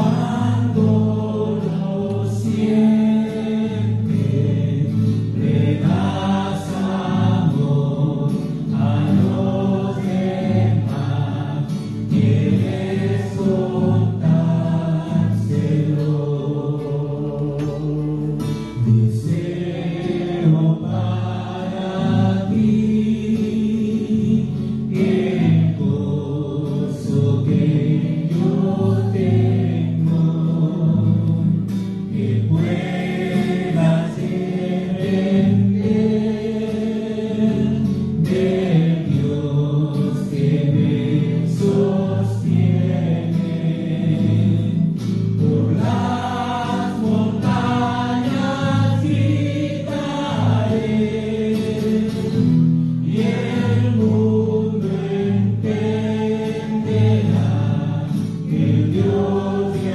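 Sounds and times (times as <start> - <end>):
acoustic guitar: 0.0 - 59.9
man singing into a microphone: 0.0 - 59.9.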